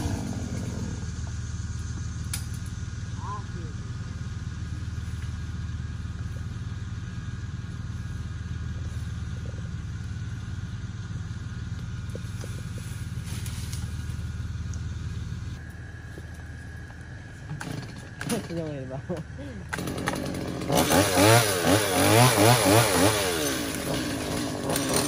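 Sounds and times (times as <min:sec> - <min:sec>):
engine droning: 0:00.0 - 0:25.0.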